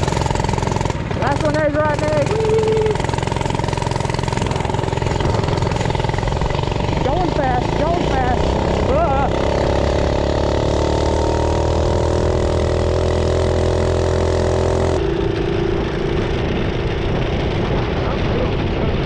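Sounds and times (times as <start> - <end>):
small motorbike engine at high revs: 0.0 - 19.0
wind noise: 15.0 - 19.0.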